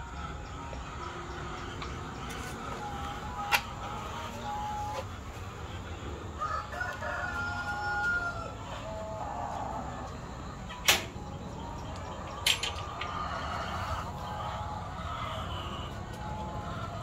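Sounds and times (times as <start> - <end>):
chickens calling: 0.0 - 17.0
rooster crowing: 6.3 - 10.3.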